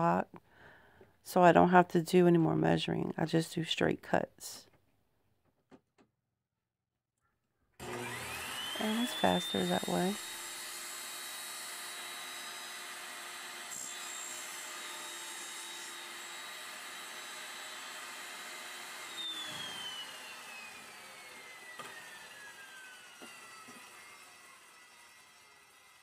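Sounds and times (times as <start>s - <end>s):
saw blade spinning down: 7.8s - 26.0s
table saw motor whine: 7.8s - 26.0s.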